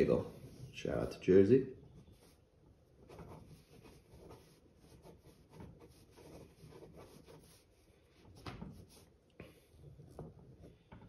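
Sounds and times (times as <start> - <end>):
pen scratching on paper: 2.0 - 9.1.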